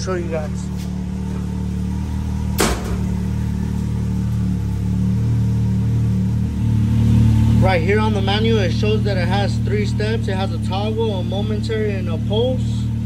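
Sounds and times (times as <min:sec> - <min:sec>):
engine idling: 0:00.0 - 0:13.0
sharp knock: 0:02.6 - 0:03.3.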